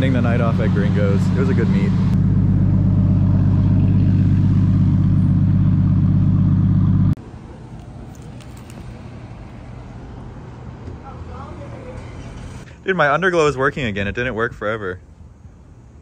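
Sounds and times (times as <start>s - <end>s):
car engine idling: 0.0s - 7.7s.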